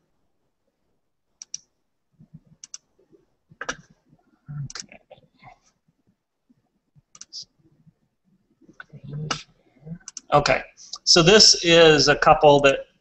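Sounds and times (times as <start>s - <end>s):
computer mouse clicks: 1.4s - 1.7s, 2.5s - 2.9s, 7.1s - 7.4s, 8.8s - 10.3s
keyboard clicks: 1.4s - 1.7s, 2.6s - 2.9s, 7.1s - 7.4s, 9.3s - 10.3s.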